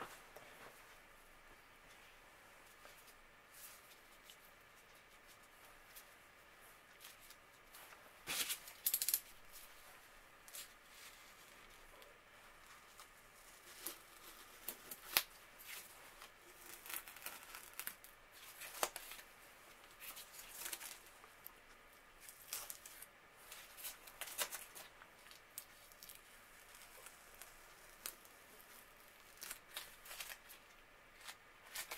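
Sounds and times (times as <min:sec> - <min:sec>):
masking tape tearing and crinkling: 0:13.5 - 0:19.2, 0:20.0 - 0:21.1, 0:22.2 - 0:31.9.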